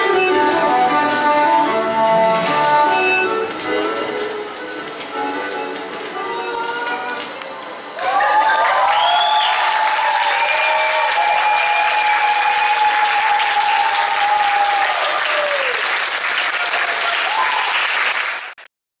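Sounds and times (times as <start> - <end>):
audience applauding: 7.9 - 18.7
audience cheering: 8.0 - 18.5.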